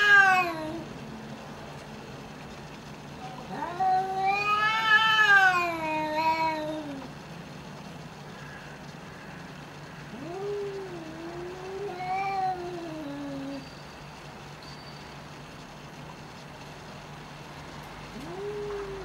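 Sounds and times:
cats yowling: 0.0 - 0.9, 3.2 - 7.2, 10.0 - 13.6, 18.1 - 19.0.

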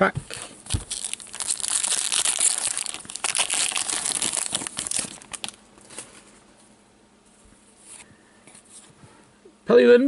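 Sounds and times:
wrapper crinkling and tearing: 0.3 - 6.1.

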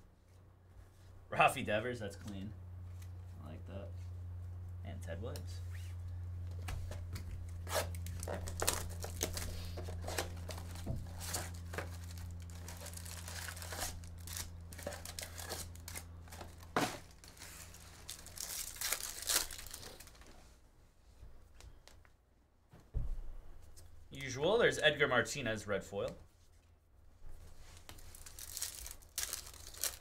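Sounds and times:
low electrical hum: 0.0 - 30.0
card pack wrappers tearing: 7.5 - 20.3, 27.8 - 30.0.

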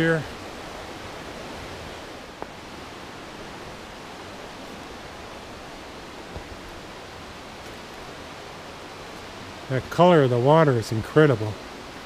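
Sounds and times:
water rushing: 0.0 - 12.0
footstep on stone step: 6.2 - 6.8.

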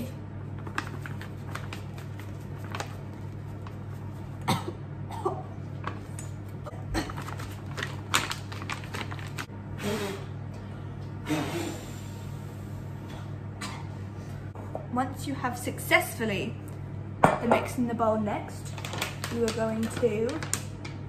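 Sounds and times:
steady low hum: 0.0 - 21.0
packet crinkling: 0.6 - 4.0, 7.0 - 9.5, 18.7 - 21.0.

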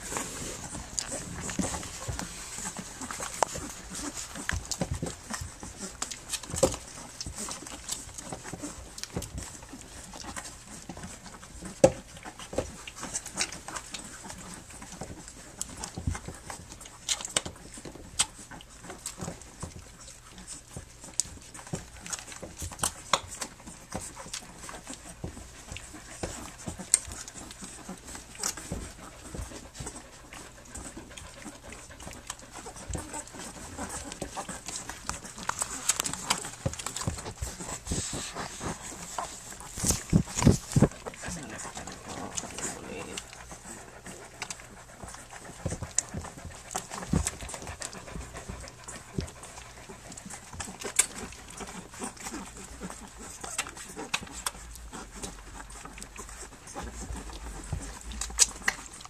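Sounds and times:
puppies suckling wet smacking: 0.0 - 59.0
puppy noises: 0.0 - 59.0.

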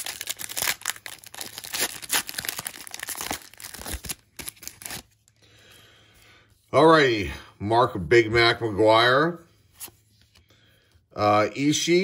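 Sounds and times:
foil wrapper tearing and crinkling: 0.0 - 5.1.

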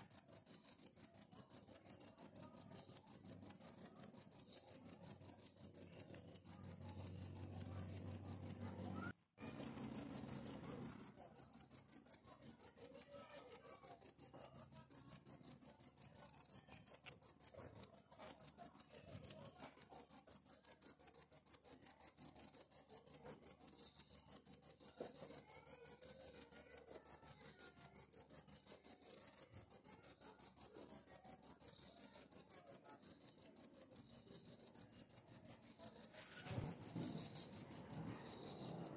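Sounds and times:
crickets chirping: 28.0 - 38.9.

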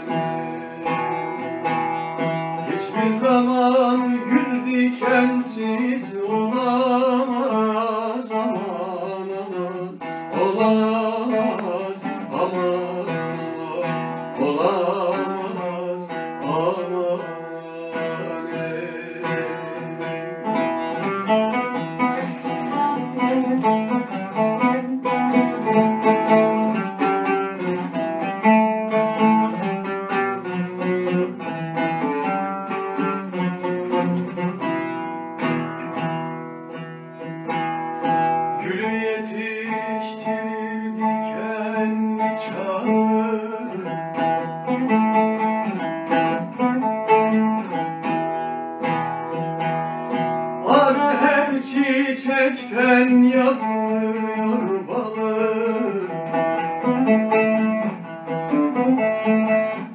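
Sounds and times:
man singing ornamented line: 0.0 - 27.4, 38.3 - 46.9, 50.1 - 57.8
oud folk melody: 0.0 - 59.9.

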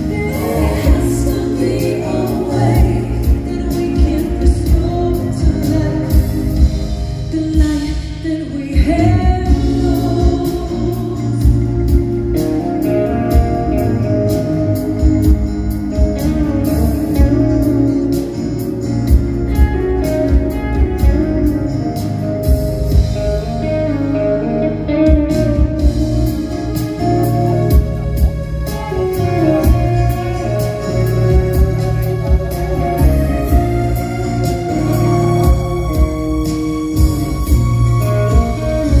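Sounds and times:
steady drum beat: 0.0 - 7.9, 8.8 - 23.6, 25.0 - 39.0
person singing: 0.0 - 11.9
live rock band and orchestra: 0.0 - 39.0.

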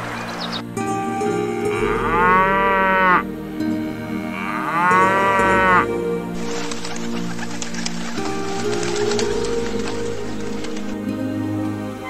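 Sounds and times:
cattle mooing: 1.4 - 3.3, 4.0 - 6.5.

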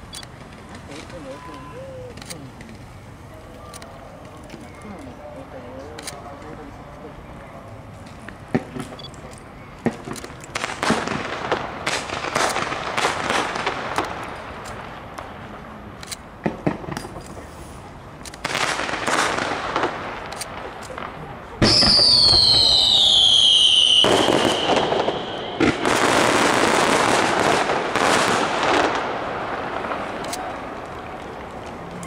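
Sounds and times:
fireworks popping and banging: 0.0 - 2.9, 7.9 - 32.0
whistling firework: 18.4 - 31.6.

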